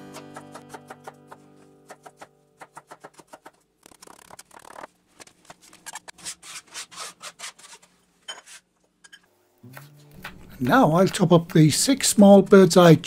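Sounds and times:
knife chopping on plastic board: 0.1s - 3.6s
knife blade scraping board: 1.9s - 9.2s.

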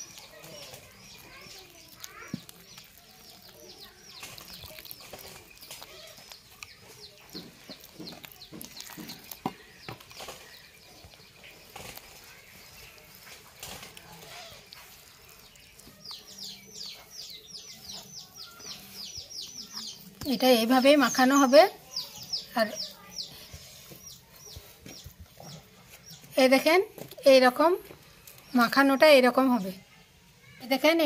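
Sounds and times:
birds chirping: 0.0s - 31.0s.

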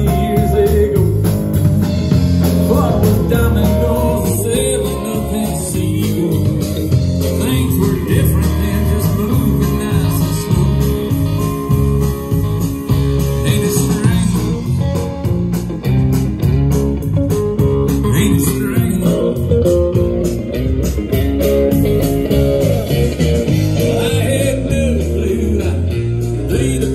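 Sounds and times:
live band playing: 0.0s - 26.9s.

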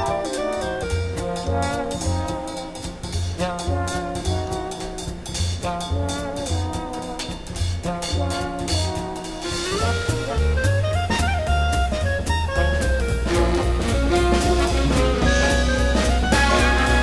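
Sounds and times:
drum and bass beat: 0.0s - 17.0s
jazz brass melody: 0.0s - 17.0s.

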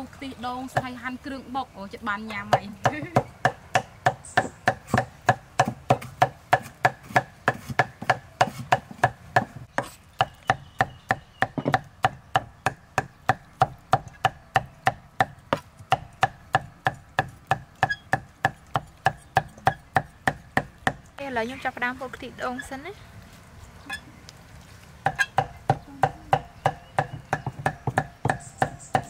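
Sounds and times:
cleaver chopping on wooden block: 2.5s - 21.1s, 25.0s - 29.0s.

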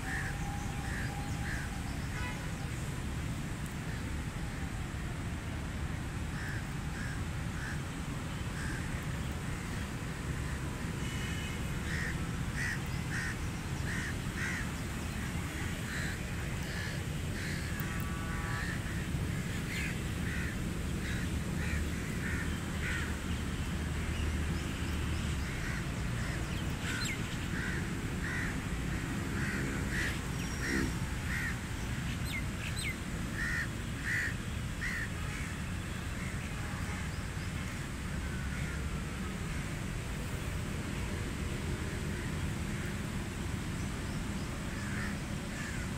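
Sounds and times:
crows cawing: 11.8s - 14.6s, 15.9s - 23.1s, 25.4s - 28.6s, 29.3s - 31.6s, 33.4s - 35.5s, 44.8s - 45.9s.

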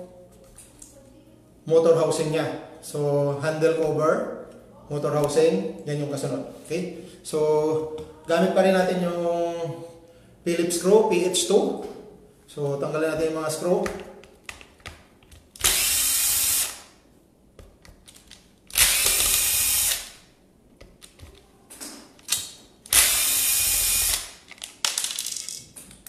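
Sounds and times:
cordless drill whirring: 15.6s - 16.9s, 18.7s - 20.2s, 22.9s - 24.3s.

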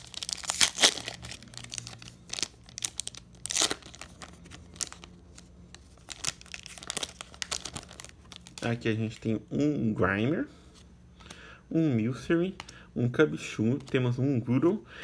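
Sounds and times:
foil wrapper crinkling and tearing: 0.0s - 9.2s.

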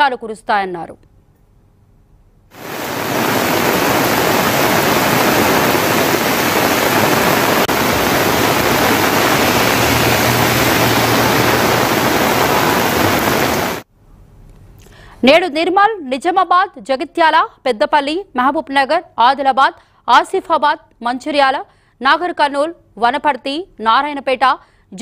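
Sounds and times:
heavy rain on a street: 2.5s - 13.9s.

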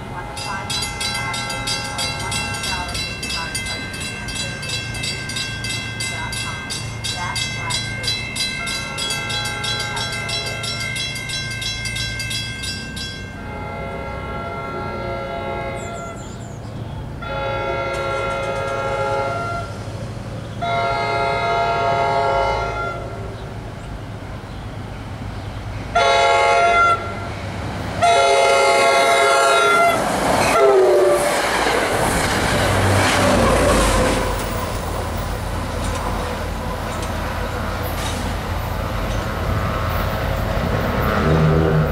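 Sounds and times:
train wheel clatter and rumble: 0.0s - 13.4s, 15.8s - 20.6s, 27.4s - 41.9s
multi-chime train horn blasts: 0.0s - 16.3s, 17.2s - 19.8s, 20.6s - 23.3s, 26.0s - 27.3s, 28.0s - 31.2s, 41.0s - 41.9s
diesel locomotive rumble: 0.0s - 41.9s.

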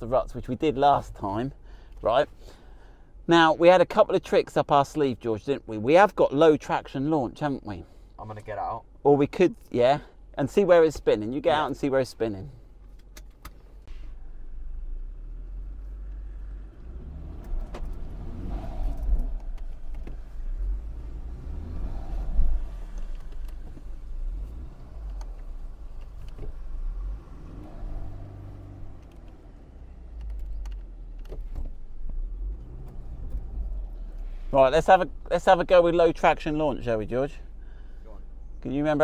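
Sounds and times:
deep steady rumble: 13.8s - 38.8s
car engine revving: 14.4s - 36.3s.

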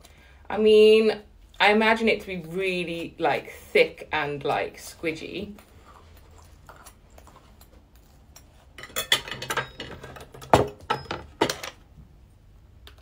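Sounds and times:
cutlery clinking on ceramic plate: 8.8s - 11.6s.

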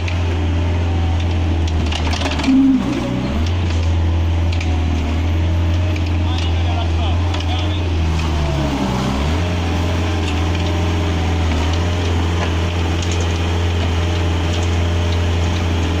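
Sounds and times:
diesel engine under load: 0.0s - 16.0s.

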